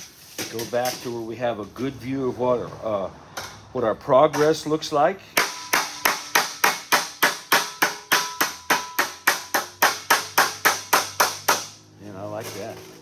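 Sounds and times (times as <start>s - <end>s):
rubber mallet tapping steel sheet: 5.4s - 11.8s.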